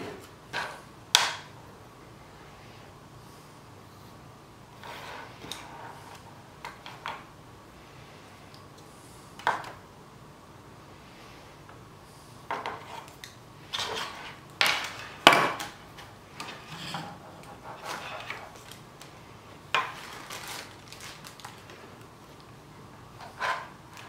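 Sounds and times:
handling rustle: 17.6s - 22.4s.

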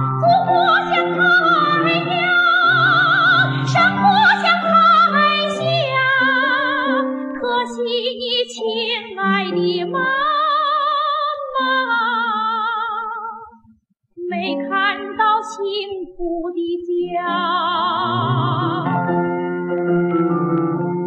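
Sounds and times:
musical accompaniment: 0.0s - 7.8s, 17.2s - 21.0s
woman singing operatically: 0.2s - 13.6s, 14.2s - 18.9s.

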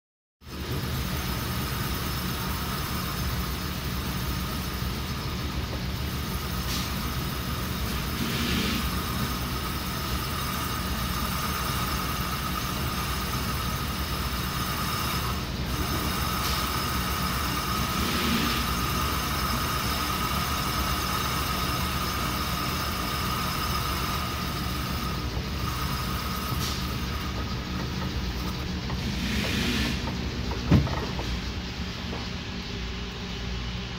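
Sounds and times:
metal lathe cutting: 7.2s - 30.2s
hissy swells of the cut: 8.1s - 9.0s, 29.0s - 30.0s.

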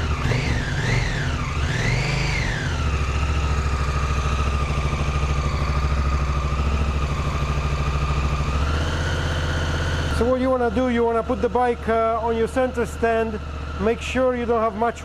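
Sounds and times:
motorcycle engine idling: 0.0s - 15.0s
steady whine: 9.2s - 15.0s.

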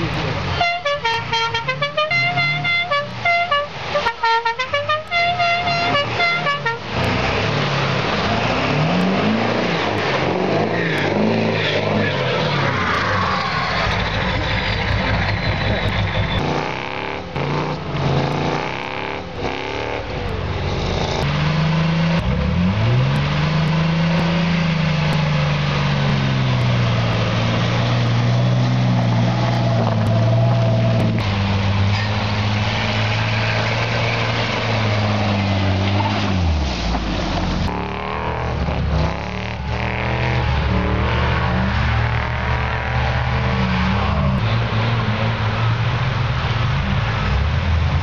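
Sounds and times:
rough engine noise with knocks: 6.9s - 45.2s.

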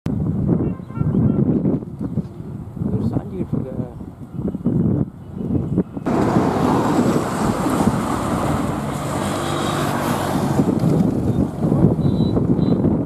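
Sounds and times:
road traffic: 0.1s - 13.0s
wind buffeting microphone: 0.1s - 13.0s
bus engine drone: 5.7s - 12.6s.

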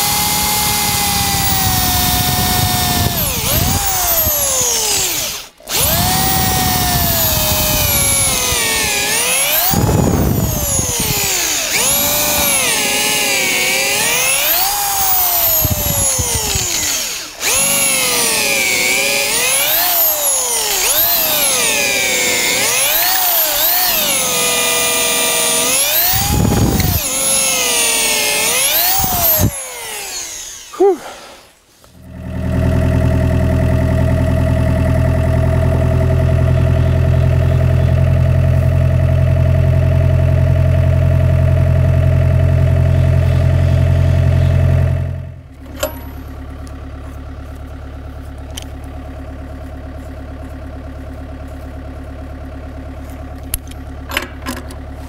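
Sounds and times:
cordless drill boring through wood: 0.0s - 31.6s
excavator engine idling: 31.9s - 55.0s.

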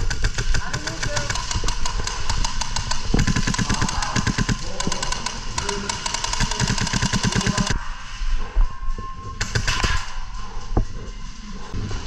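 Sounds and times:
airsoft rifle full-auto bursts: 0.0s - 7.8s
crackle of other gunshots: 9.4s - 10.2s.

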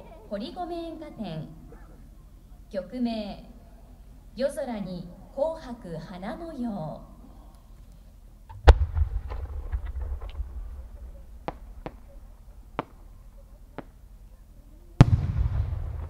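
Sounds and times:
firework boom with rumble: 8.5s - 13.1s, 15.0s - 16.0s
sharp firework cracks: 8.5s - 14.1s, 15.0s - 16.0s.

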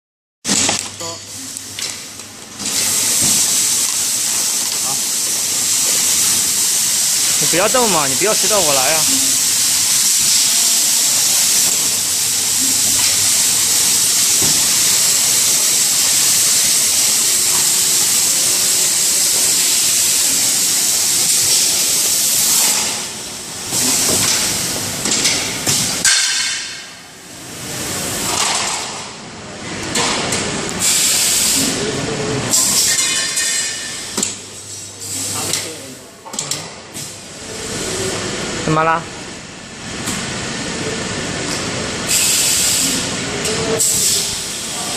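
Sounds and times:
machinery hissing: 2.6s - 26.0s, 30.8s - 33.0s, 42.0s - 44.9s.

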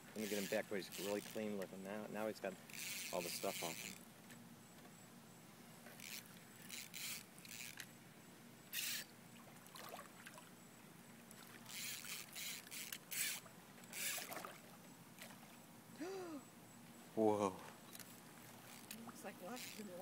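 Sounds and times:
faint water splashes: 9.3s - 12.8s, 13.4s - 15.7s.

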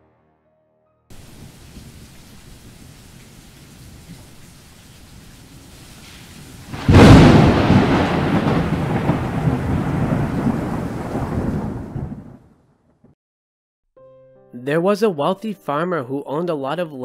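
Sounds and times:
rain hiss: 1.1s - 11.6s
thunderclap rumbling: 1.1s - 13.2s.

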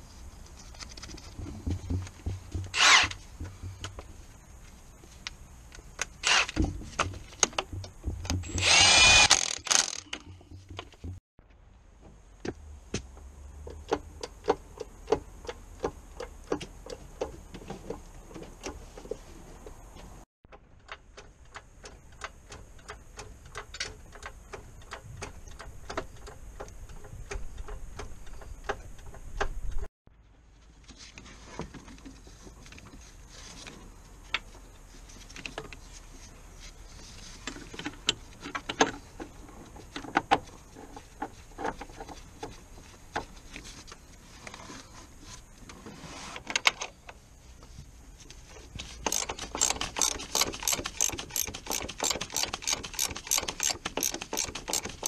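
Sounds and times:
socket ratchet clicking: 49.0s - 55.0s.

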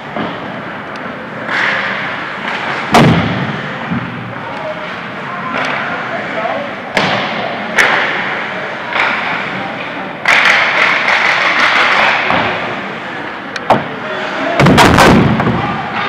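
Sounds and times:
hissing rink noise: 0.0s - 14.6s
hockey stick or puck crack: 1.4s - 4.0s, 6.9s - 9.6s, 10.2s - 12.8s.

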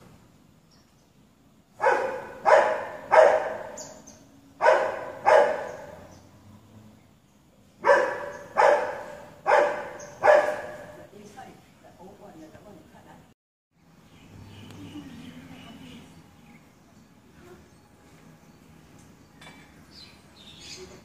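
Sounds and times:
dog barking: 1.8s - 4.0s, 4.6s - 6.1s, 7.8s - 11.1s.

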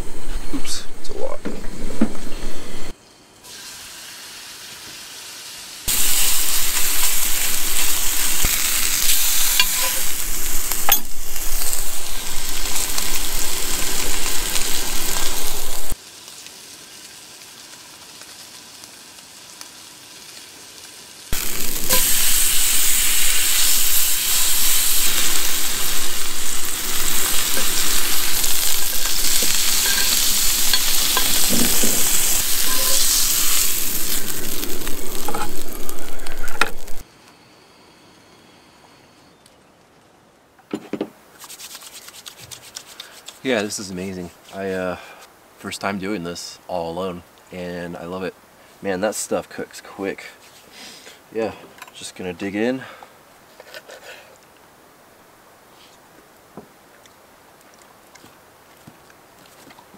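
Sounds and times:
steak sizzling in a skillet: 3.5s - 37.0s.

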